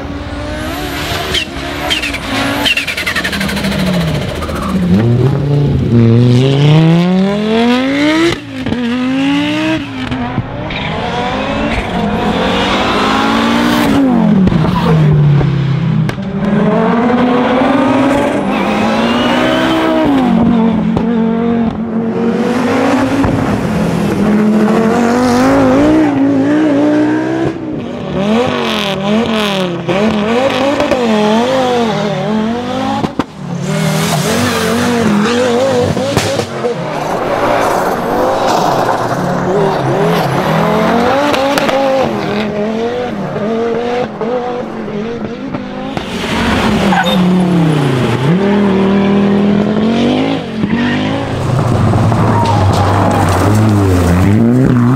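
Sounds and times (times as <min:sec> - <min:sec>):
rally car engines revving: 0:00.0 - 0:54.9.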